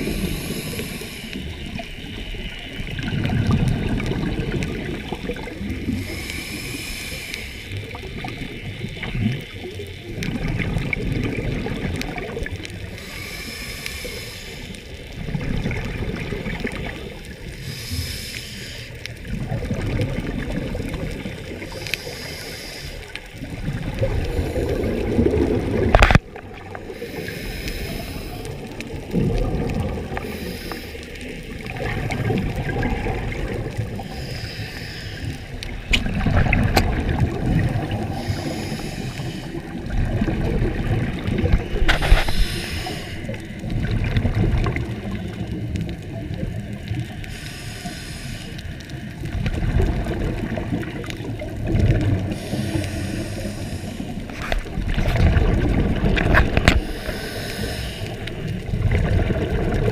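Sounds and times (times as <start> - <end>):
diver breathing through regulator: 0.0 - 1.6, 5.9 - 7.9, 12.9 - 15.0, 17.5 - 19.1, 21.6 - 23.4, 24.0 - 25.5, 26.8 - 29.2, 30.0 - 31.6, 32.8 - 35.8, 37.2 - 40.4, 41.4 - 43.5, 47.0 - 49.1, 51.8 - 55.0, 56.5 - 58.6
exhaled bubbles rumbling: 0.0 - 59.9.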